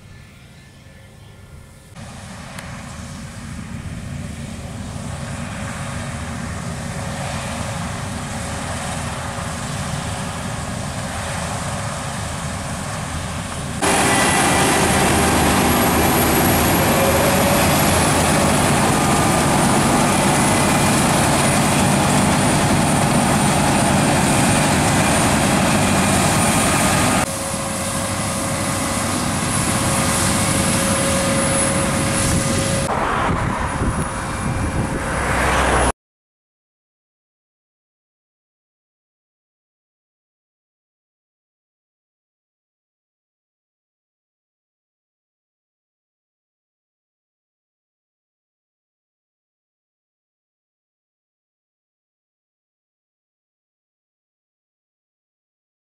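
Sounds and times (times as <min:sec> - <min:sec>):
combine harvester engine drone: 0:00.0 - 0:35.9
thin high whine: 0:13.2 - 0:35.9.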